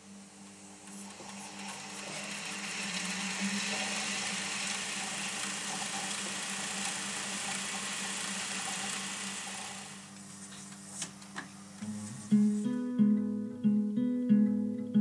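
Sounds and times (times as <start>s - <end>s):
tape machine motor hum: 0.0s - 10.4s
tape hiss: 10.0s - 15.0s.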